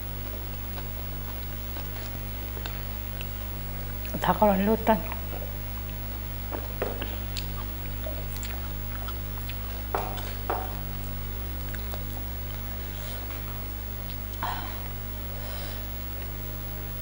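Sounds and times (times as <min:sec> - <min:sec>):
low electrical hum: 0:00.0 - 0:17.0
mouth smacks while chewing: 0:00.2 - 0:04.2, 0:06.6 - 0:15.0.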